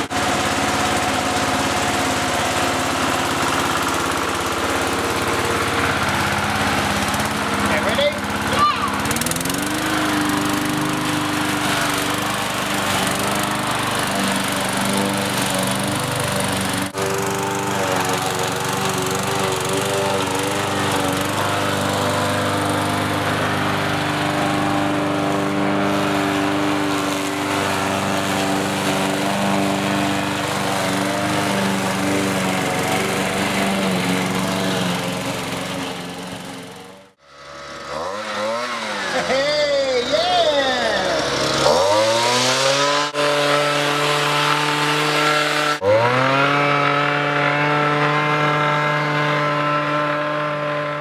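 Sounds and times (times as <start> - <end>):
lawnmower engine running: 0.0 - 51.0.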